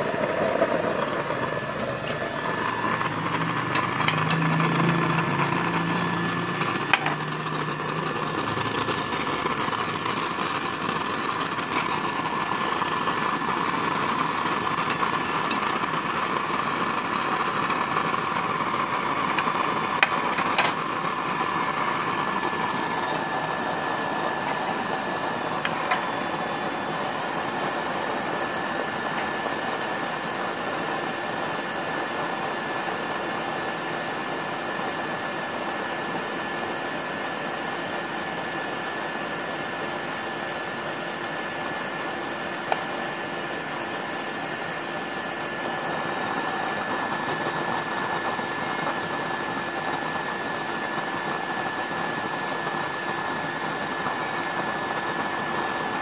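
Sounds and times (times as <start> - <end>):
burner flame rushing: 0.0 - 31.5.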